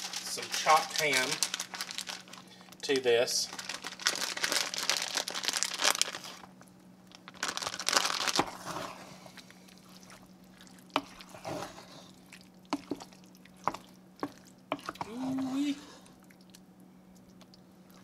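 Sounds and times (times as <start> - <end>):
plastic packaging crinkle: 0.0 - 9.2
wet squelching and scraping: 8.3 - 16.5.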